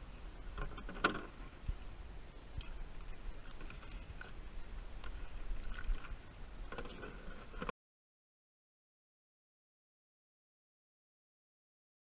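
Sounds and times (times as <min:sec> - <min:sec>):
wind rumble on microphone: 0:00.0 - 0:07.7.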